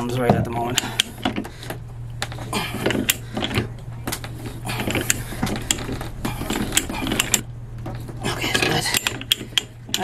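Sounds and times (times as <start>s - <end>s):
dies scraping pipe threads: 0.6s - 10.0s.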